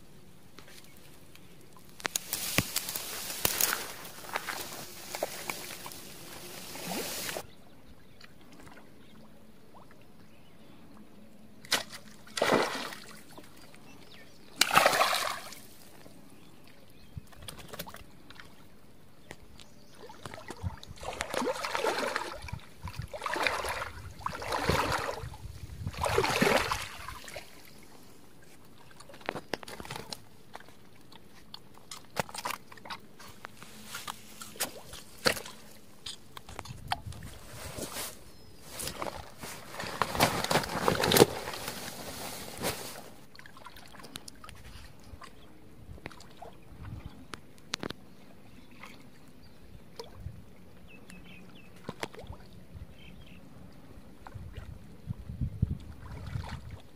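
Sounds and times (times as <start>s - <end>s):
shallow water splashing: 2.0s - 7.4s, 11.7s - 13.5s, 14.6s - 15.8s, 20.0s - 27.8s.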